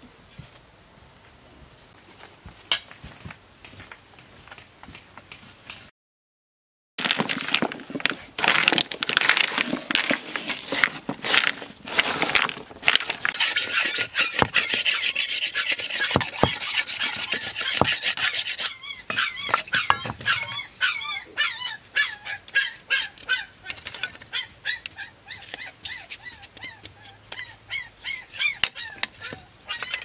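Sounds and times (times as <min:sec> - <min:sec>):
knife scraping bamboo: 0:09.3 - 0:20.7, 0:22.0 - 0:30.0.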